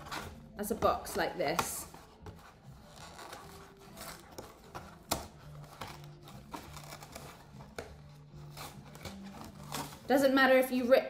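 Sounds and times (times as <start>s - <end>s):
cardboard snapping: 1.0s - 10.1s
cardboard box tearing open: 2.8s - 10.1s.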